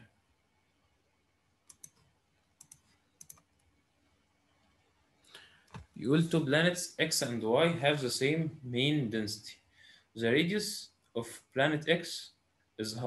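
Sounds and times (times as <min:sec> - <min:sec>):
faint computer clicks: 0:01.7 - 0:03.5.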